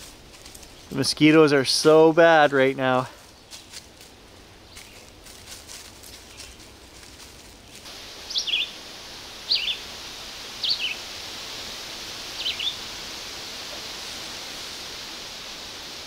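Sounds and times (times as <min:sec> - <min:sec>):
steady background hiss: 0:00.0 - 0:16.0
bird calling two-part notes: 0:08.2 - 0:08.8, 0:09.4 - 0:09.9, 0:10.6 - 0:11.0, 0:12.3 - 0:12.9.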